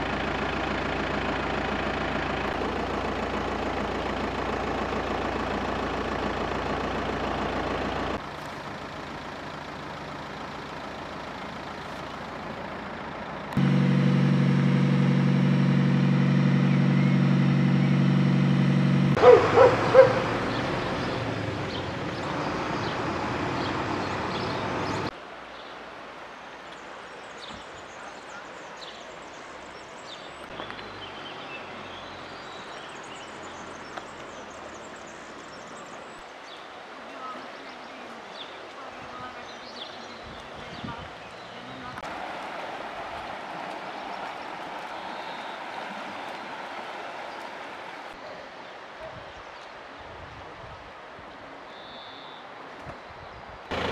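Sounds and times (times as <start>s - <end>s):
heavy engine idling: 0.0s - 25.1s
steady water rush: 19.1s - 53.9s
dog barking: 19.2s - 20.3s.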